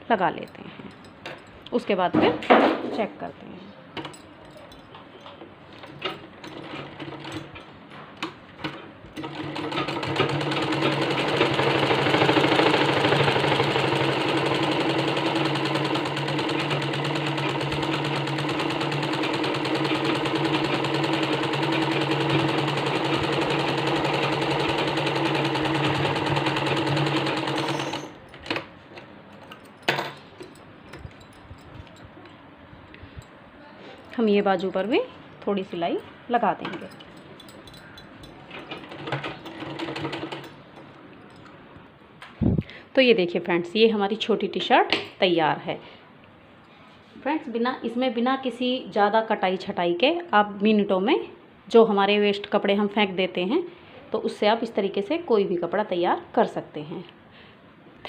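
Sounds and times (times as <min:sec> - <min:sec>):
sewing machine running: 0:05.7 - 0:07.5, 0:08.6 - 0:28.7, 0:38.5 - 0:40.6.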